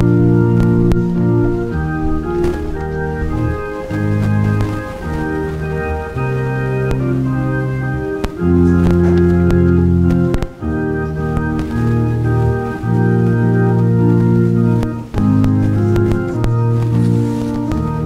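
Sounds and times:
organ playing sustained chords: 0:00.0 - 0:18.0.

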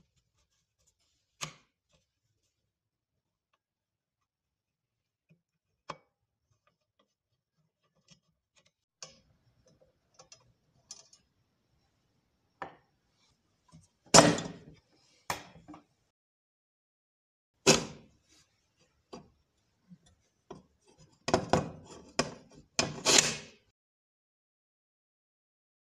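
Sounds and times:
small metallic clicks and taps: 0:07.8 - 0:11.3.

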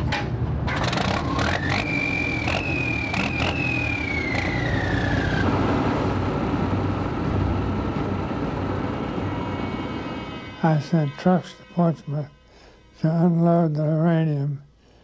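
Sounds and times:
low engine rumble: 0:00.0 - 0:11.9
steam whistle falling in pitch: 0:01.4 - 0:05.5.

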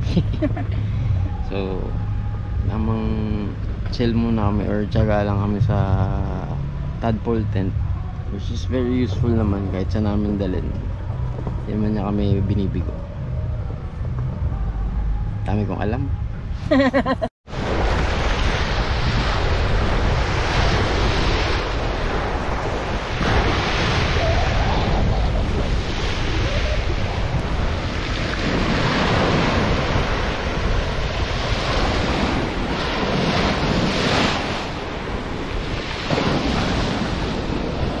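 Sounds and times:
wind rumbling on microphone: 0:00.0 - 0:38.0
waves breaking on pebble beach: 0:17.5 - 0:38.0.

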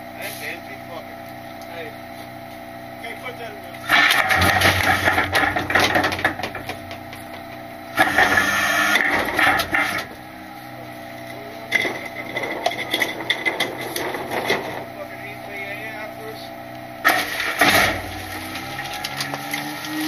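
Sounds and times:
garbage truck low hum: 0:00.0 - 0:20.0
trash and packer clattering: 0:03.9 - 0:07.4, 0:11.6 - 0:15.0, 0:17.0 - 0:20.0.

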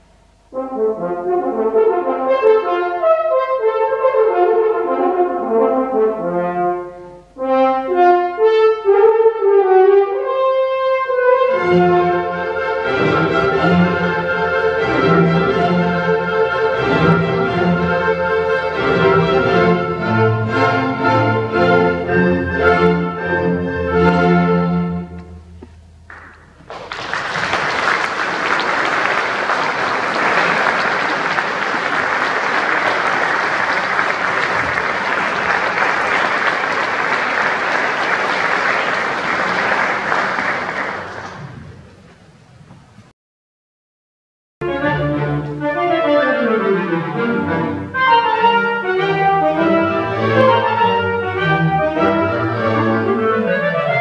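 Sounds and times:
chamber orchestra playing: 0:00.5 - 0:25.6, 0:44.6 - 0:54.0.

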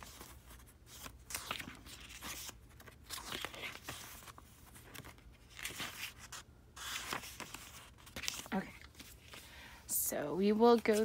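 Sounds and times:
paper pages turning: 0:00.0 - 0:09.5, 0:10.6 - 0:11.0.

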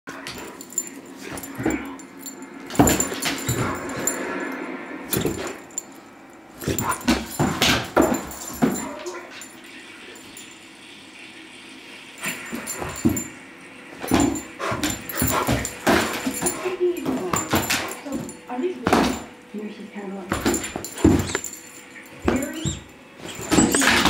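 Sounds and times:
dog whining: 0:22.3 - 0:24.0.

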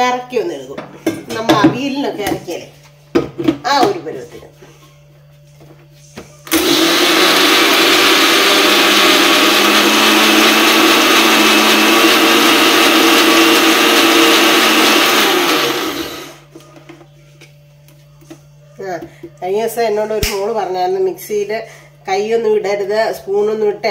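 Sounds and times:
mixer grinder running: 0:06.5 - 0:16.5.

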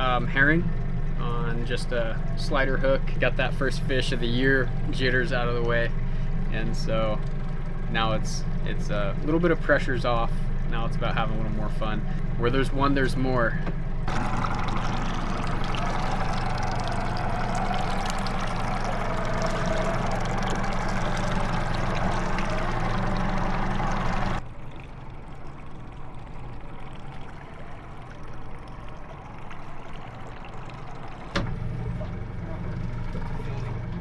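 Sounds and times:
boat motor humming: 0:00.0 - 0:34.0
water washing: 0:14.1 - 0:33.9
water pouring onto boat deck: 0:14.1 - 0:34.0.

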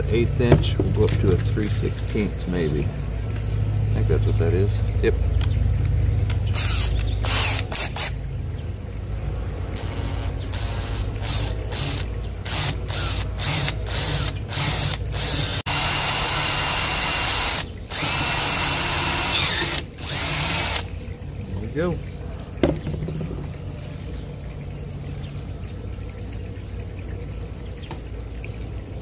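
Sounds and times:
cordless drill boring metal: 0:06.6 - 0:08.1, 0:09.8 - 0:20.9.

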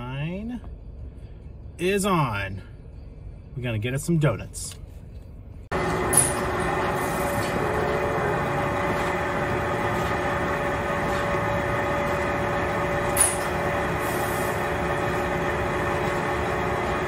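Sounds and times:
machine hum: 0:05.5 - 0:17.0
steady tones: 0:05.7 - 0:17.0.

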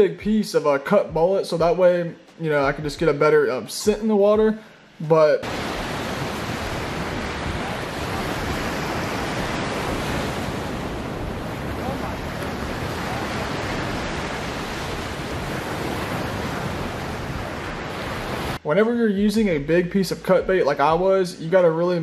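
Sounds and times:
surf breaking on sand beach: 0:05.4 - 0:18.6
wind on microphone: 0:05.5 - 0:18.6.

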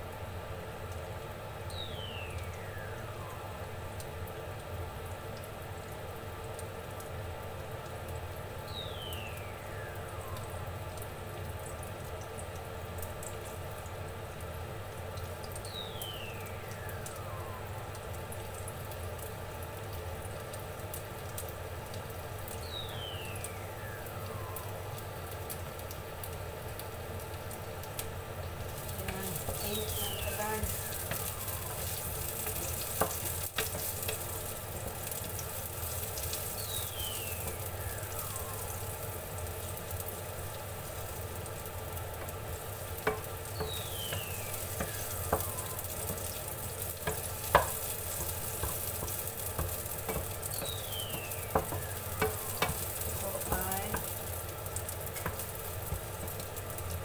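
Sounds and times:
garlic sizzling in a frying pan: 0:00.0 - 0:57.0
low steady hum: 0:00.0 - 0:57.0
faint falling whistle: 0:02.6 - 0:03.7, 0:16.4 - 0:17.9, 0:23.3 - 0:25.0, 0:36.8 - 0:39.1, 0:45.0 - 0:46.1.

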